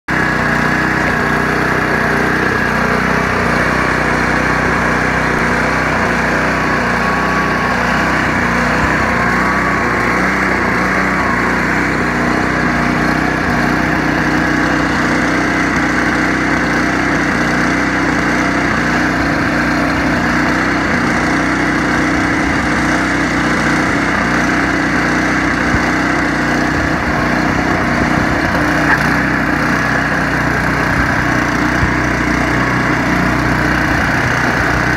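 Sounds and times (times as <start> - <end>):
snowblower engine running: 0.1 - 34.9.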